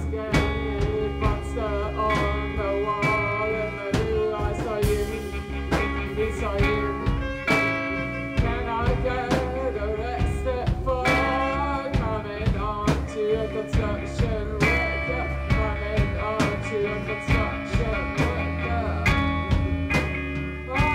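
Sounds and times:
bass guitar: 0:00.0 - 0:20.9
drums steady beat: 0:00.0 - 0:20.9
live rock band playing: 0:00.0 - 0:20.9.

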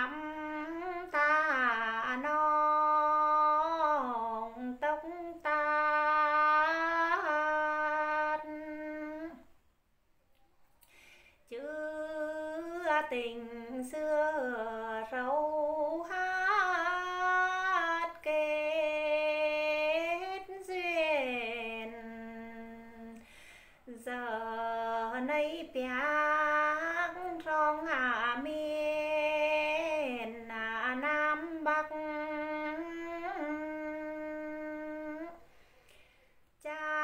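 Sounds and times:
woman singing unaccompanied: 0:00.0 - 0:09.6, 0:11.4 - 0:35.5, 0:36.5 - 0:37.0.

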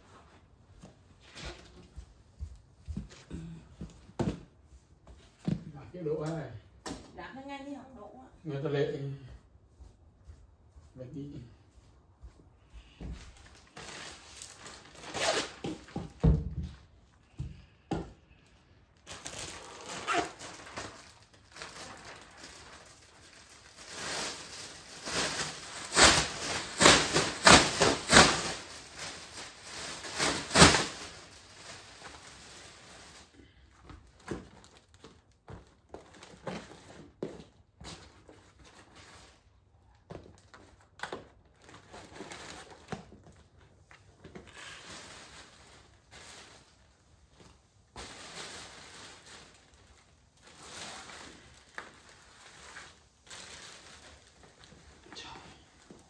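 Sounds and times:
crinkling: 0:12.4 - 0:56.0.

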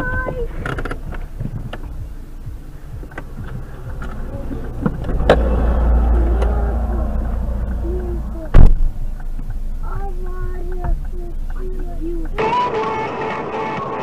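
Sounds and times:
low engine-like hum: 0:00.0 - 0:12.4
low rumble: 0:00.0 - 0:12.4.

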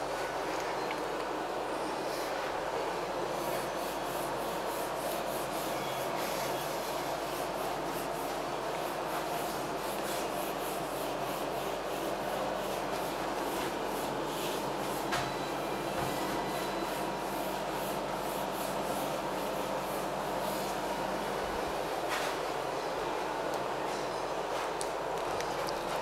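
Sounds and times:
duster rubbing on whiteboard: 0:03.4 - 0:15.1.

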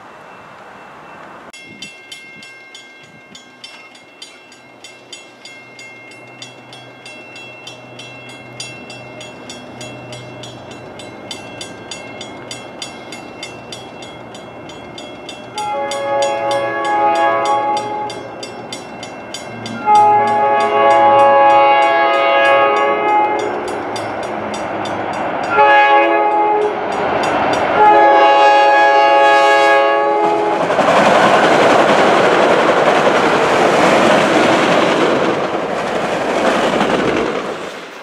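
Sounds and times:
crossing warning bell ringing: 0:00.0 - 0:35.0
diesel locomotive rumble: 0:04.6 - 0:37.7
train air horn blast: 0:15.6 - 0:18.2, 0:19.7 - 0:23.6, 0:25.5 - 0:26.8, 0:27.8 - 0:30.6.

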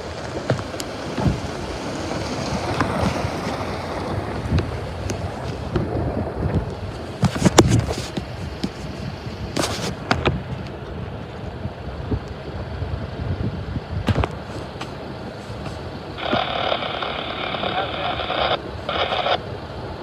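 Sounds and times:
tyres crunching gravel: 0:00.0 - 0:05.9, 0:14.1 - 0:19.4
wind on microphone: 0:00.0 - 0:19.4.

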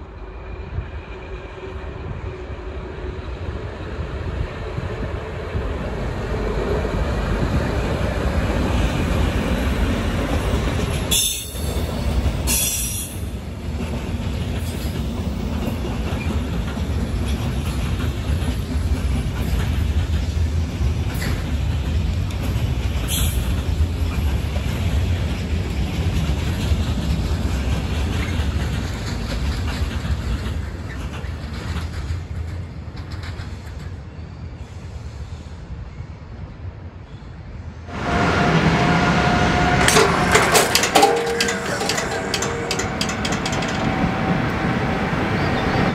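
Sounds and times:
freight train wheels clattering: 0:08.2 - 0:34.0, 0:39.6 - 0:45.6.

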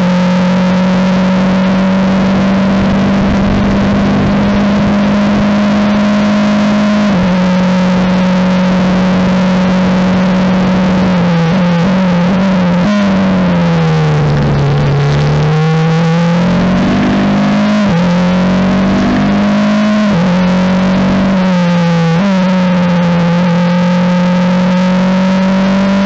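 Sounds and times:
race car engine at full throttle: 0:00.0 - 0:26.0
wind noise: 0:01.1 - 0:21.5.

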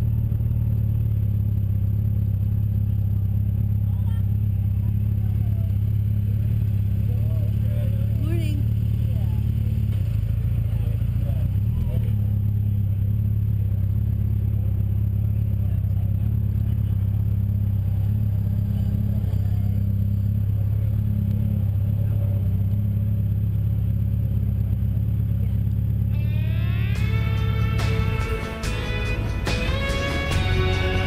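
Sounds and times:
motorcycle engine running: 0:00.0 - 0:31.0
guitar music: 0:26.1 - 0:31.0.

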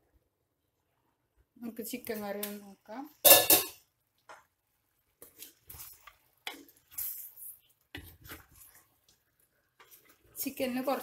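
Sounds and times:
wooden spoon stirring in pot: 0:04.0 - 0:11.0.

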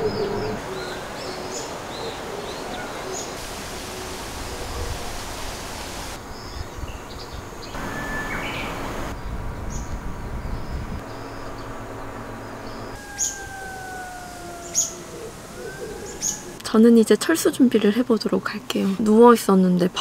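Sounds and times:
wind through trees: 0:00.0 - 0:20.0
bird chirps: 0:06.4 - 0:09.9, 0:12.4 - 0:16.6
faint falling whine: 0:10.9 - 0:16.7.

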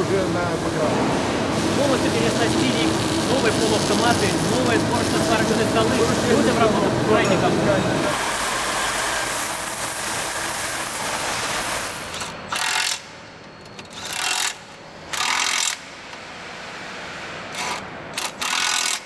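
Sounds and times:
machine cutter boring into steel: 0:17.6 - 0:19.0.

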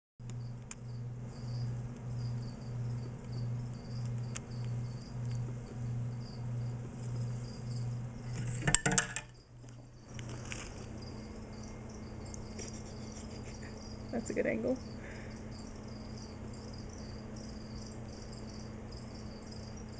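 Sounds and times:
pulsing low hum: 0:00.2 - 0:08.7
steady quiet hum: 0:00.2 - 0:19.9.

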